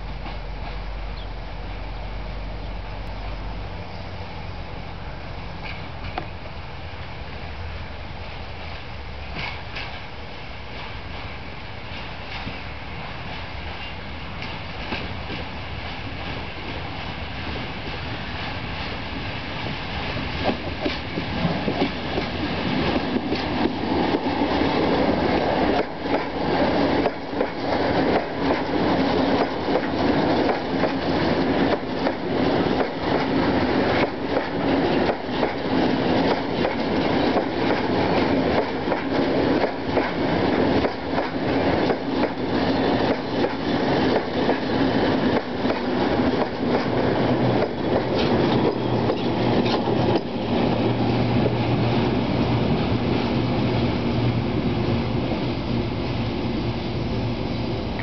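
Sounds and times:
wheels clacking over rail joints: 0:19.6 - 0:53.2.

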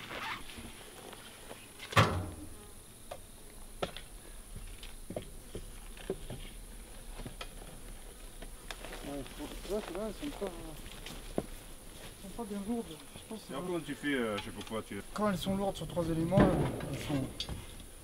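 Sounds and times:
bees buzzing: 0:00.0 - 0:18.0
thump: 0:01.9 - 0:02.5, 0:16.3 - 0:17.7.

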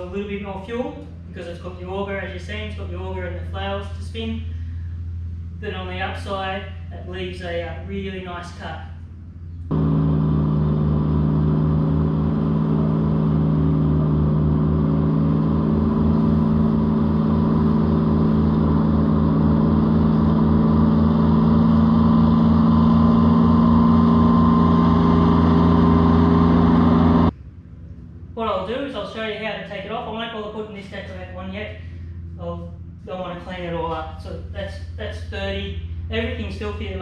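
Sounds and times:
ride-on mower running: 0:09.7 - 0:27.3.

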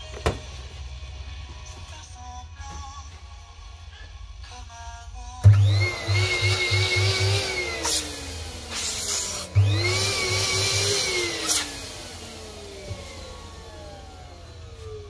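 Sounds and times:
electric balloon inflator blowing: 0:05.4 - 0:15.0.

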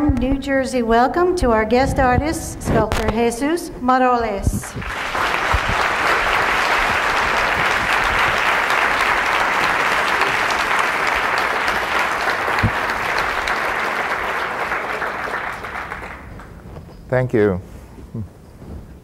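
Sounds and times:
audience applauding: 0:04.6 - 0:16.6.

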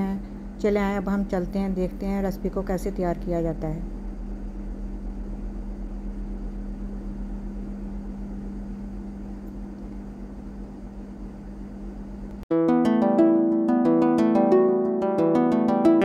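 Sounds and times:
low hum: 0:00.0 - 0:12.4.

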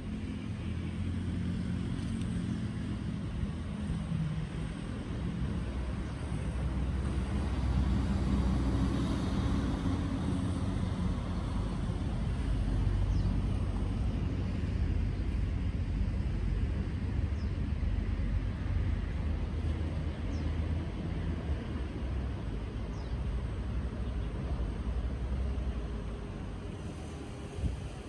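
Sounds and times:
road traffic rumble: 0:00.0 - 0:28.0
vehicle engine: 0:00.0 - 0:28.0.

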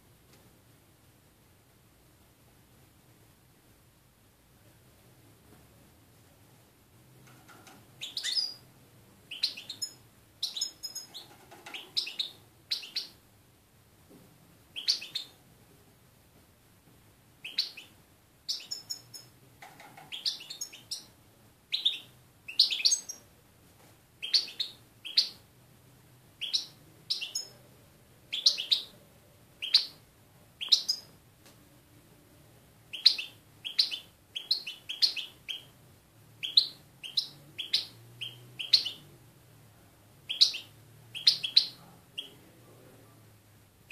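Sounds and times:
goldfinch chirping song: 0:08.0 - 0:08.6, 0:09.3 - 0:13.2, 0:14.7 - 0:15.4, 0:17.4 - 0:19.3, 0:20.0 - 0:21.1, 0:21.7 - 0:23.2, 0:24.2 - 0:25.4, 0:26.4 - 0:27.6, 0:28.3 - 0:28.9, 0:29.6 - 0:30.0, 0:30.6 - 0:31.1, 0:32.9 - 0:35.8, 0:36.4 - 0:39.1, 0:40.3 - 0:42.4.

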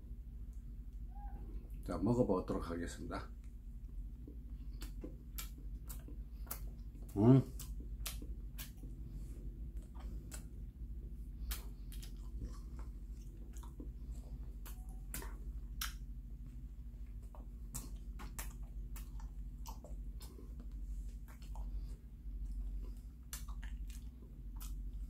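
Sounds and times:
person chewing pastry: 0:03.4 - 0:25.0
wet mouth clicks: 0:04.3 - 0:09.0, 0:09.6 - 0:10.7, 0:11.4 - 0:16.1, 0:17.2 - 0:22.6, 0:23.2 - 0:25.0.

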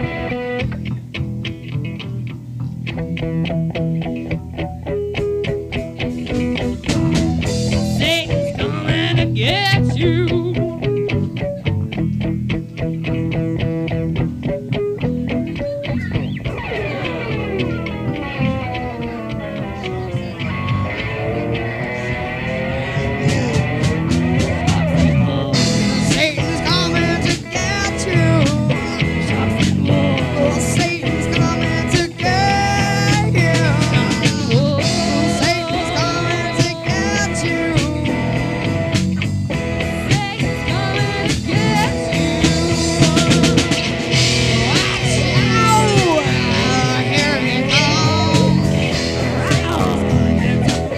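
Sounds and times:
drum kit: 0:00.0 - 0:50.9
psychedelic rock jam with guitar: 0:00.0 - 0:50.9
person singing: 0:07.4 - 0:10.9, 0:24.6 - 0:38.7, 0:39.9 - 0:50.9.

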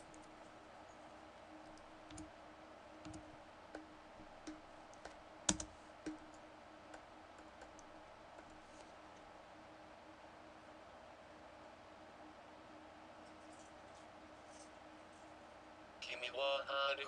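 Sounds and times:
faint steady hum: 0:00.0 - 0:17.0
computer mouse clicks: 0:01.6 - 0:02.3, 0:03.0 - 0:08.6.

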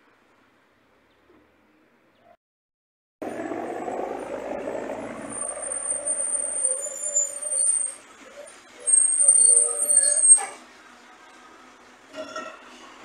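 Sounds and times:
cable car sheaves humming: 0:03.2 - 0:10.5
thin high-pitched whine: 0:03.9 - 0:08.0.

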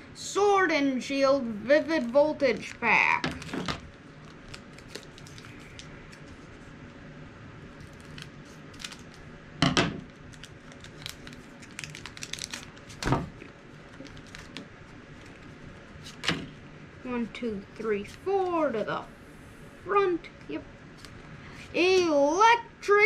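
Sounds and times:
foil wrapper crinkling: 0:01.8 - 0:06.8, 0:07.7 - 0:09.3, 0:10.0 - 0:16.6
foil wrapper ripping: 0:01.9 - 0:06.6, 0:07.7 - 0:09.3, 0:10.0 - 0:16.4.

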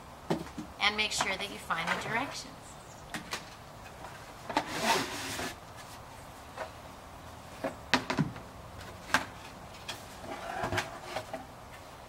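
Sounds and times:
plastic scraping in cardboard box: 0:04.5 - 0:05.6.

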